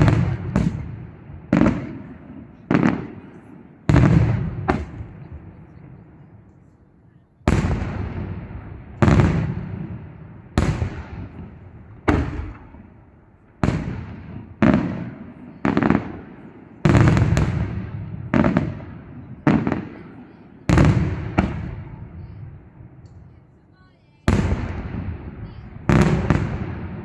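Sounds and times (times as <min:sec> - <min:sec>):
firework shells bursting with booms: 0:00.0 - 0:06.2, 0:07.4 - 0:23.2, 0:24.2 - 0:27.0.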